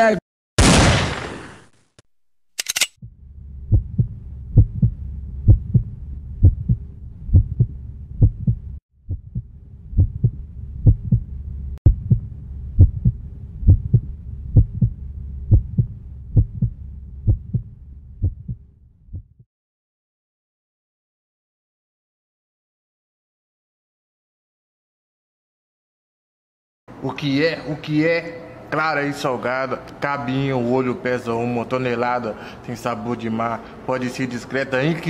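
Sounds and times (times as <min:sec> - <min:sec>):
low steady hum: 0:03.0 - 0:19.2
heartbeat thumps: 0:03.0 - 0:19.4.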